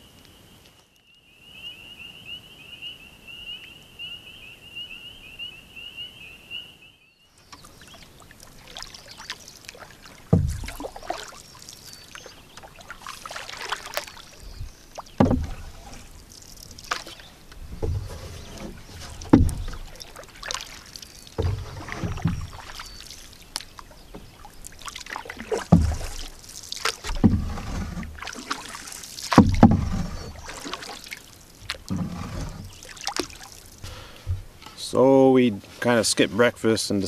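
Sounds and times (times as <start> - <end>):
paddle strokes with water splashing: 7.4 - 36.9
dull heavy thumps: 10.2 - 11.1, 14.4 - 16.2, 16.9 - 20.2, 21.4 - 22.8, 25.4 - 26.4, 27.0 - 28.4, 29.3 - 30.6, 33.8 - 34.8.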